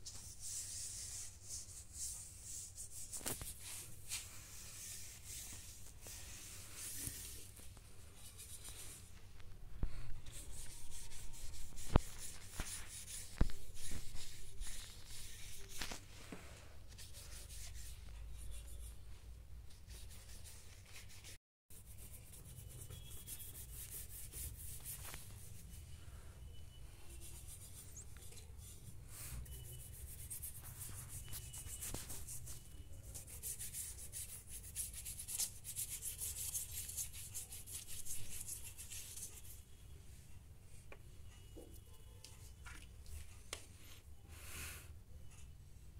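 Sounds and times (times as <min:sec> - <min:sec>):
paintbrush scrubbing paper: 0:00.0 - 0:09.2, 0:10.0 - 0:16.1, 0:16.9 - 0:18.9, 0:19.7 - 0:25.8, 0:27.1 - 0:39.6.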